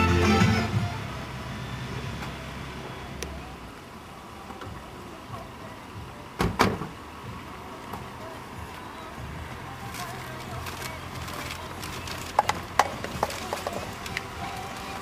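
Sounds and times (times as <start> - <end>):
music: 0.0 - 1.6, 3.4 - 15.0
idling car hum: 0.0 - 15.0
car door thumps: 6.4 - 7.0.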